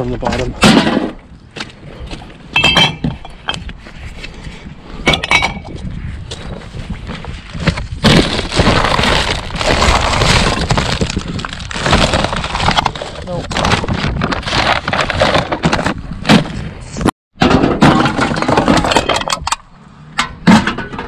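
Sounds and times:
glass bottles and cans clinking: 2.5s - 3.6s, 5.0s - 5.7s
plastic garbage bags rustling: 8.0s - 16.0s.

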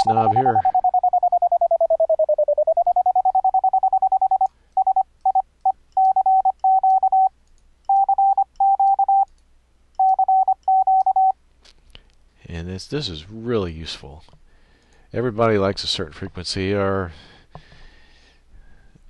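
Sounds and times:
morse code sine tone: 0.0s - 5.4s, 6.0s - 7.3s, 7.9s - 9.3s, 10.0s - 11.4s.

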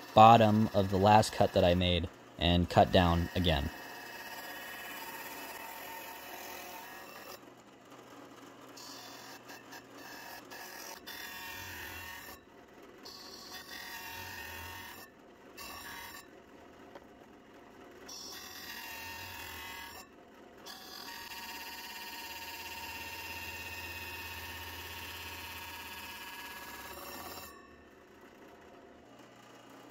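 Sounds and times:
hole saw ringing whine: 0.0s - 3.9s, 25.1s - 28.0s.

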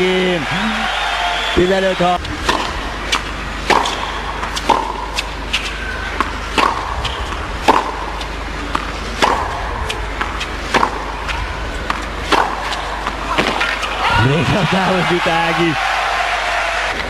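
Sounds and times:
steady low hum: 0.0s - 17.0s
tennis ball hit with rackets: 2.4s - 13.8s.

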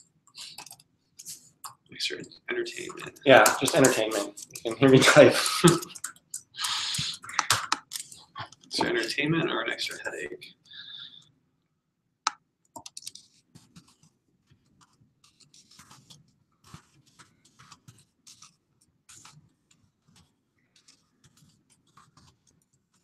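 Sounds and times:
typing on computer keyboard: 0.4s - 1.8s, 2.8s - 8.9s, 12.7s - 14.0s.

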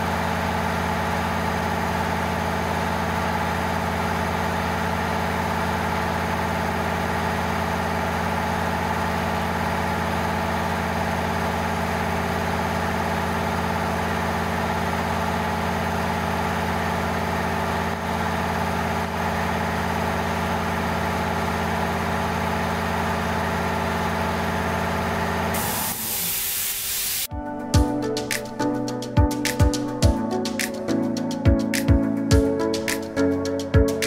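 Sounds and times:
air compressor running: 0.0s - 27.3s
air hiss from valve: 25.6s - 27.3s.

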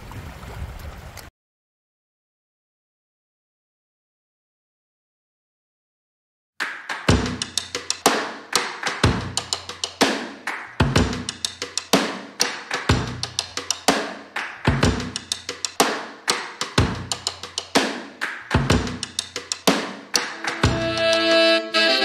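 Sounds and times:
steady drum beat: 6.6s - 22.0s.

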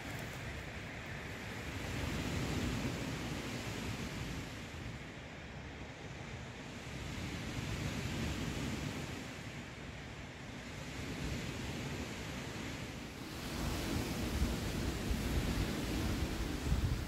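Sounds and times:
waves washing onto beach: 0.0s - 17.0s
wind: 0.0s - 17.0s.

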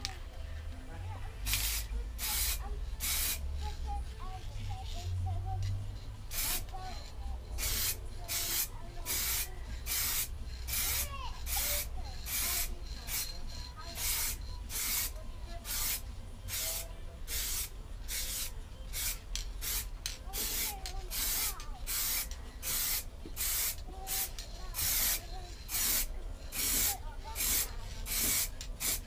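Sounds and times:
aerosol spray can hissing: 1.5s - 3.4s, 6.3s - 6.7s, 7.6s - 13.3s, 14.0s - 29.0s.

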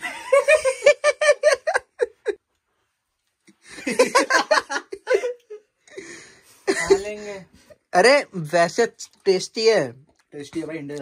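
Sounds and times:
person laughing: 0.0s - 2.4s, 3.7s - 6.1s.

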